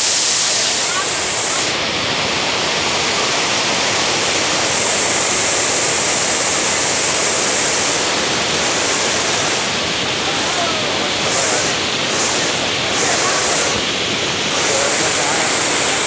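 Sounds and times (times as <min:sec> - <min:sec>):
water rushing over rocks: 0:00.0 - 0:16.0.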